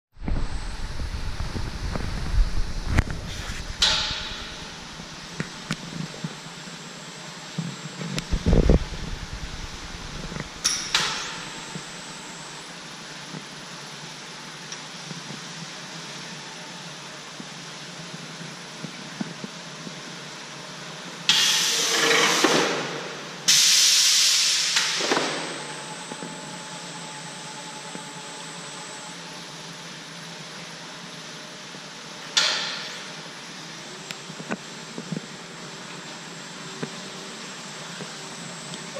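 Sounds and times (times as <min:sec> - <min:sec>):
machinery hum: 0:00.1 - 0:38.9
conveyor machinery rumbling: 0:00.2 - 0:06.6, 0:08.2 - 0:13.2
compressed air hiss: 0:21.3 - 0:22.7, 0:23.5 - 0:25.2.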